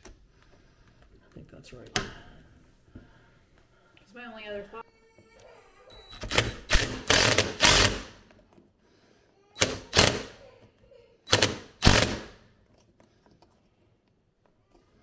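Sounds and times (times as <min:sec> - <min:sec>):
impact driver hammering screws: 0:06.2 - 0:08.2, 0:09.6 - 0:10.3, 0:11.3 - 0:12.4.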